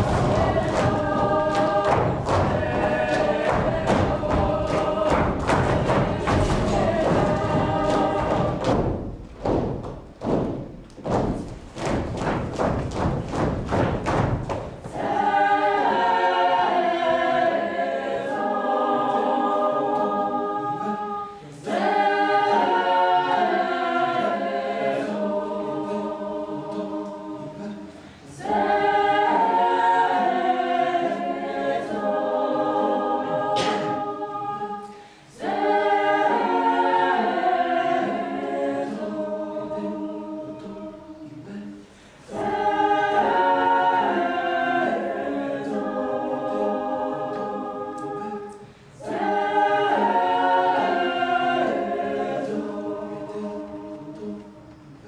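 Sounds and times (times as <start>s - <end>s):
choir singing held chords: 0.0s - 55.0s.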